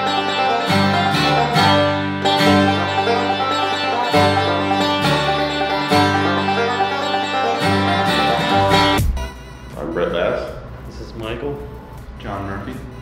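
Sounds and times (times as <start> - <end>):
banjo picking rolls: 0.0 - 9.0
plucked upright bass: 0.0 - 9.1
strummed acoustic guitar: 0.0 - 9.1.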